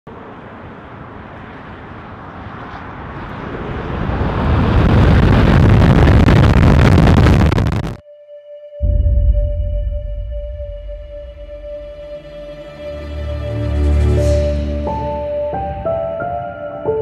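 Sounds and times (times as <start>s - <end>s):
tyre and road noise: 0.1s - 8.0s
wind rushing over microphone: 0.1s - 8.0s.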